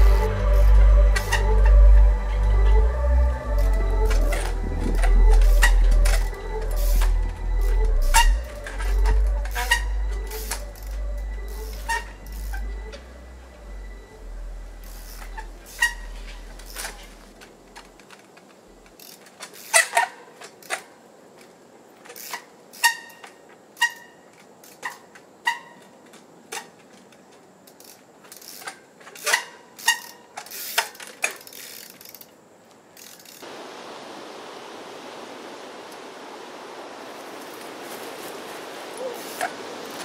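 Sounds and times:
steady hiss: 0:00.0 - 0:40.0.

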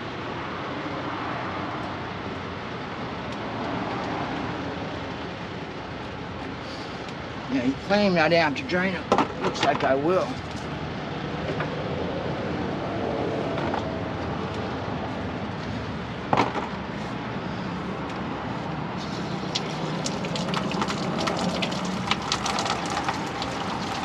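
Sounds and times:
steady background noise: 0:00.0 - 0:24.0
coolant dripping: 0:09.3 - 0:10.8, 0:19.0 - 0:24.0.

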